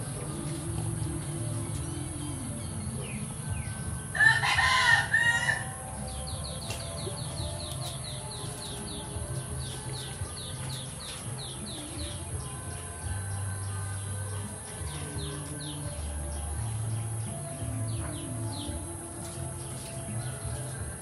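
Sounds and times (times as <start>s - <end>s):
rooster crowing: 4.1s - 6.1s.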